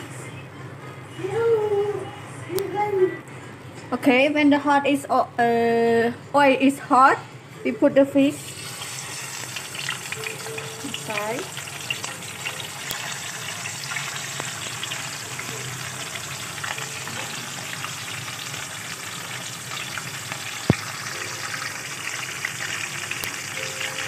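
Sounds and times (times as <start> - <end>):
fish frying in hot oil: 8.4 - 24.0.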